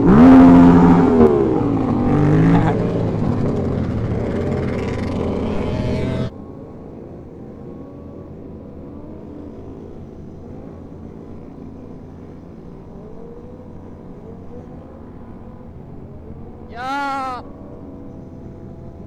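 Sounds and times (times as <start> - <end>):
engine notes rising and falling: 0.0 - 6.3
low rumble of vehicle engines: 0.0 - 19.0.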